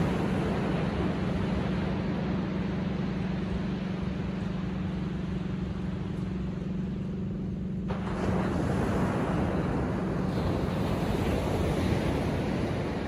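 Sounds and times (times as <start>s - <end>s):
ocean surf on sandy beach: 0.0s - 13.0s
steady low hum: 0.0s - 13.0s
wave breaking: 7.9s - 13.0s.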